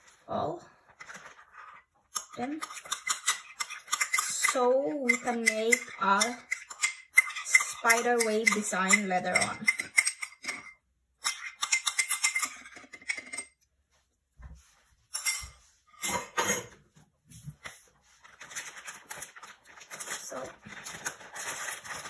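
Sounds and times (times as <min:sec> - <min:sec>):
metal spoon scraping cake pan: 0:01.1 - 0:13.5.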